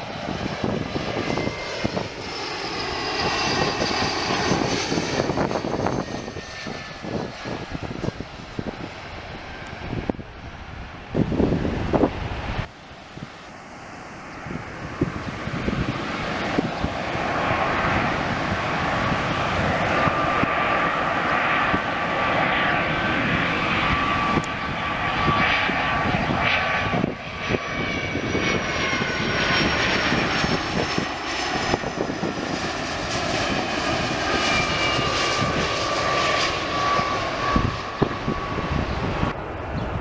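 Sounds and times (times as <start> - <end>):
airliner passing with falling whine: 0.0 - 40.0
jet engines rumbling and whining: 0.0 - 40.0.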